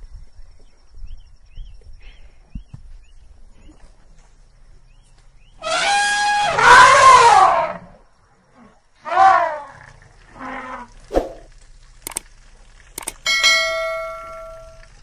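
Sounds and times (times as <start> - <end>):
sharp click: 12.1 - 12.3, 13.0 - 13.2.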